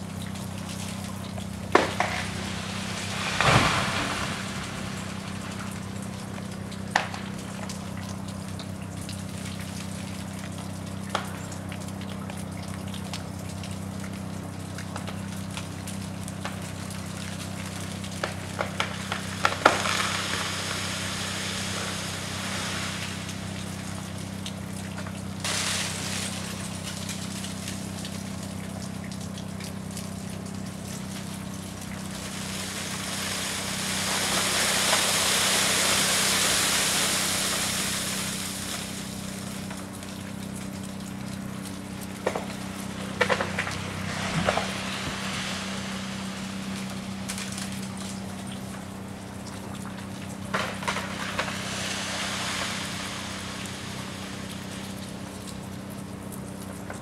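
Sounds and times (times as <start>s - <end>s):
low hum: 0.0s - 9.2s
iced branches cracking: 0.6s - 7.8s, 16.3s - 49.0s, 49.8s - 57.0s
hissing rush in iced branches: 1.7s - 7.6s, 16.9s - 24.4s, 25.4s - 28.6s, 30.8s - 39.9s, 42.6s - 48.4s, 50.5s - 55.6s.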